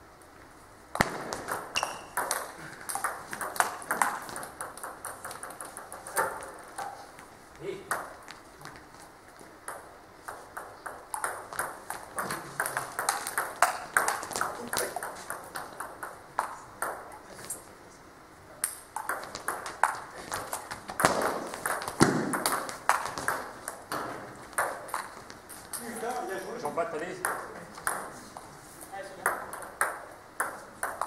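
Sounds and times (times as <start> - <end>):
table tennis ball clicking: 1.5 - 7.0, 9.6 - 17.2, 18.6 - 25.8, 29.2 - 31.0.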